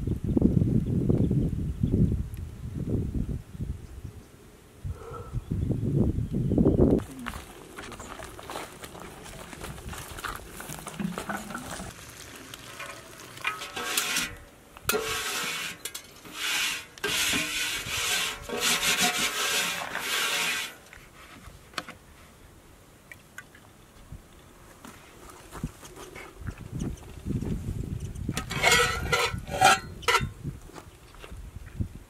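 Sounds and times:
metal pot being scraped: 0:12.7 - 0:20.8, 0:28.4 - 0:30.3.

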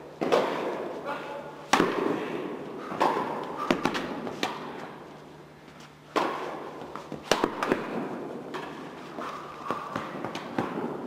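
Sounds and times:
tennis balls hit by rackets: 0:00.1 - 0:01.0, 0:01.6 - 0:05.1, 0:05.8 - 0:11.0
tennis balls bouncing: 0:00.2 - 0:00.9, 0:01.7 - 0:02.2, 0:02.8 - 0:05.0, 0:05.8 - 0:11.0.

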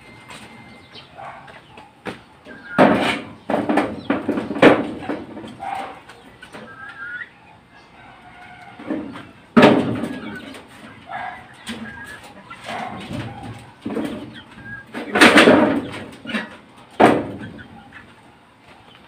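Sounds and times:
chickens clucking: 0:00.0 - 0:19.0
loud knocks and rattles: 0:02.8 - 0:05.6, 0:08.9 - 0:10.5, 0:12.8 - 0:17.6.

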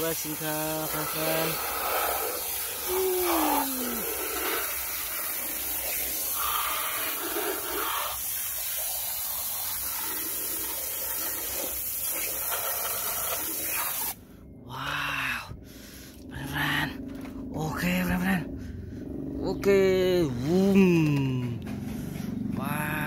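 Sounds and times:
water spray gun hissing: 0:00.0 - 0:14.2.

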